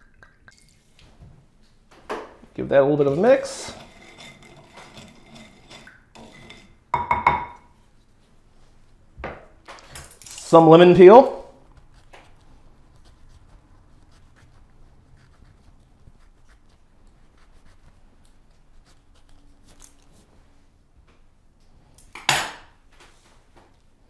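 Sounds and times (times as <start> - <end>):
knife scraping lemon peel: 3.1 - 6.7
knock: 7.0 - 7.6.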